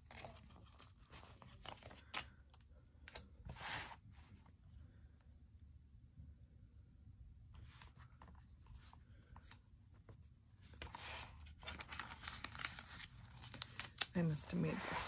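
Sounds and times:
paper rustling: 0.0s - 2.4s, 7.6s - 15.0s.

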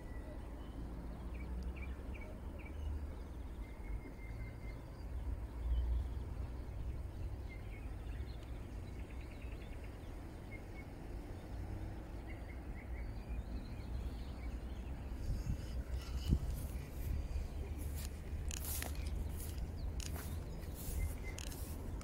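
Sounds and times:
clicks and rustles: 15.7s - 22.0s.

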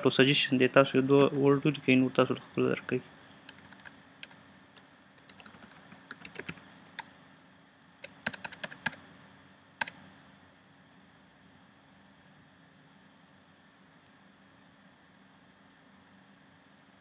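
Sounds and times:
keyboard typing: 0.6s - 1.4s, 3.5s - 7.1s, 8.0s - 9.0s.

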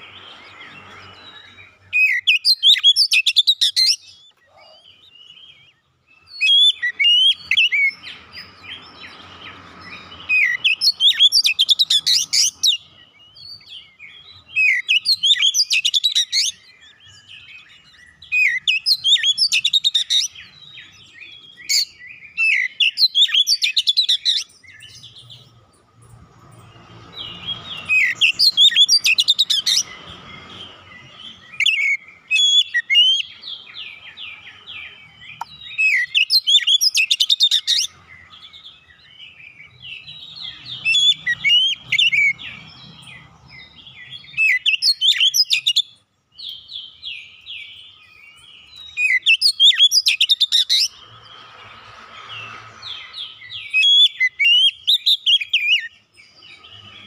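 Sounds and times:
bird singing whistles and trills: 0.0s - 25.7s, 26.6s - 57.0s.

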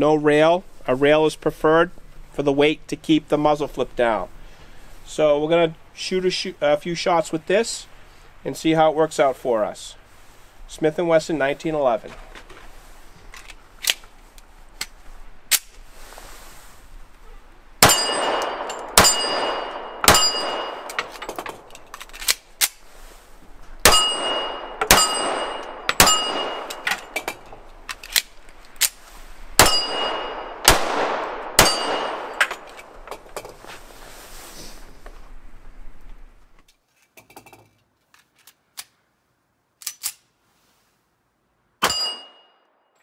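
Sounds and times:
gun handling clicks: 13.3s - 15.8s, 20.8s - 22.8s, 26.6s - 29.0s, 39.8s - 40.2s
pistol shots ringing: 17.8s - 21.0s, 23.8s - 27.2s, 29.6s - 32.7s.

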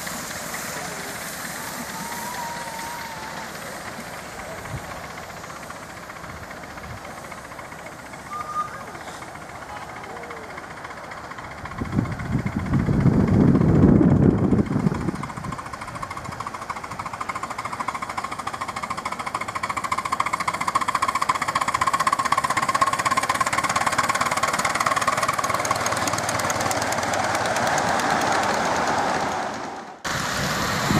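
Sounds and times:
steam locomotive beats: 0.0s - 30.9s
high-pitched squeal: 0.8s - 4.6s.

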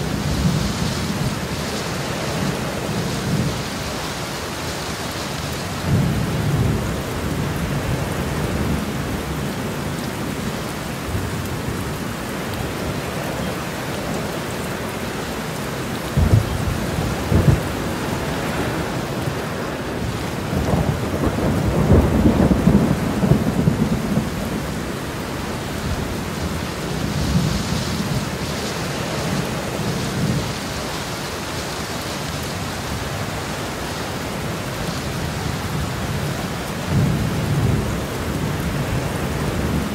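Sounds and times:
heavy rain: 0.0s - 39.9s
thunder rumbling: 16.0s - 30.9s
sharp thunder claps: 16.2s - 17.8s.

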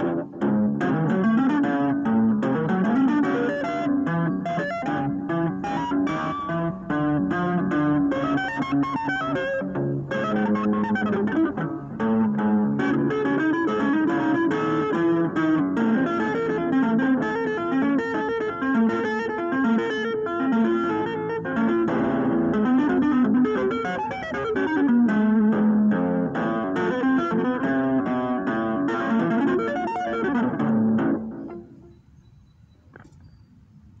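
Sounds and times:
electric guitar tapping runs: 0.0s - 32.0s.

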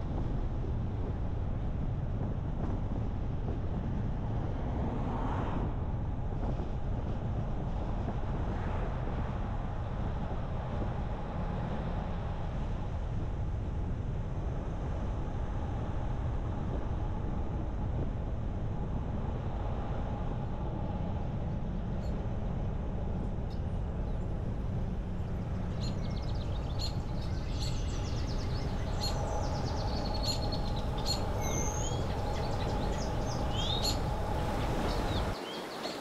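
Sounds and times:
car road and wind rumble: 0.0s - 36.0s
birds chirping: 25.7s - 36.0s.

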